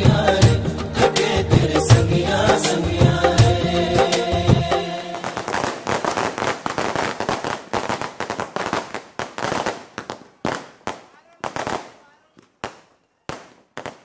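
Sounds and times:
background music: 0.0 - 5.9
fireworks crackling: 5.0 - 14.0.

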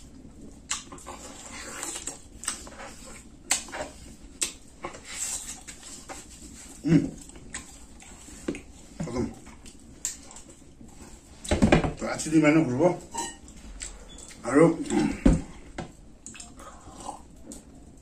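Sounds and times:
wet chewing and lip smacks: 0.5 - 1.2, 1.8 - 5.8, 7.1 - 8.8, 9.4 - 10.8, 16.0 - 18.0
throaty sounds from eater: 6.6 - 10.7, 13.7 - 17.7.

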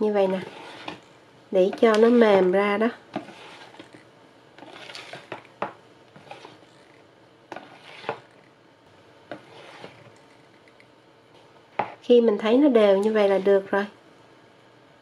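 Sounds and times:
whisk swishing through batter: 0.2 - 1.0, 3.2 - 4.0, 4.6 - 5.5, 6.2 - 8.4, 9.3 - 10.5.

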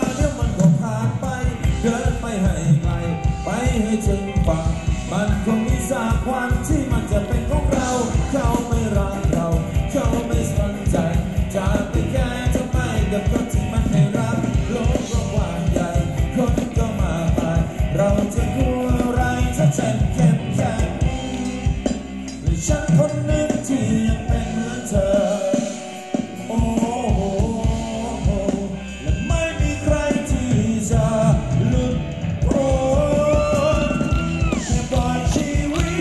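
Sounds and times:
person singing: 0.0 - 36.0
quick steady drum beat: 32.4 - 36.0.

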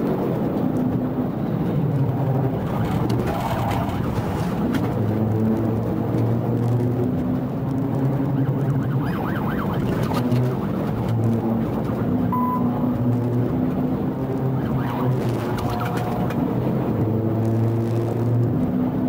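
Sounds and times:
police siren wailing: 2.1 - 6.0, 7.0 - 17.4.

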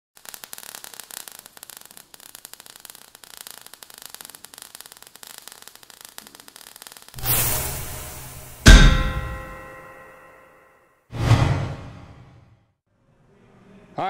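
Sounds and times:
sparks crackling and fizzing: 0.1 - 9.9.

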